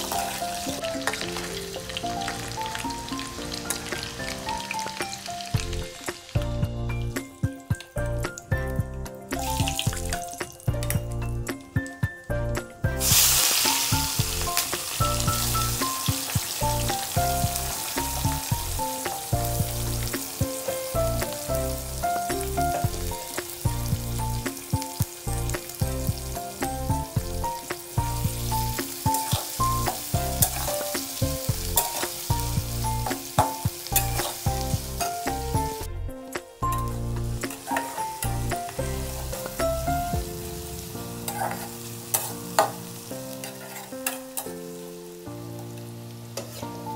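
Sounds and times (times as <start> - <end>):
onions sizzling in hot oil: 0.0 - 12.0, 12.8 - 35.9, 36.6 - 46.9
background music: 0.0 - 46.9
spatula scraping pan: 37.5 - 39.6, 41.2 - 42.8, 43.4 - 44.6.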